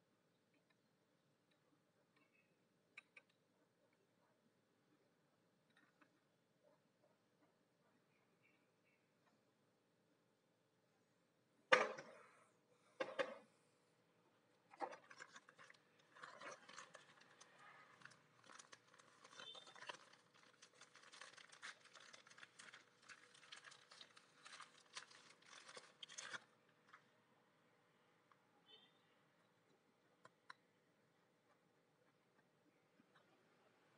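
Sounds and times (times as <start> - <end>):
plastic bag crinkling: 14.8 - 26.5.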